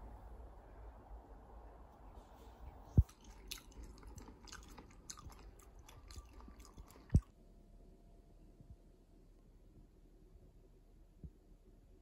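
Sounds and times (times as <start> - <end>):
crunchy chewing of food: 2.8 - 7.3.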